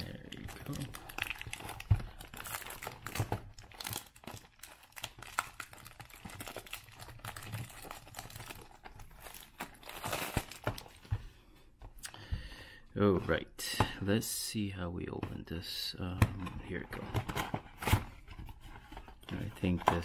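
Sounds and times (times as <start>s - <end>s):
plastic wrap tearing and crinkling: 0.4s - 11.0s.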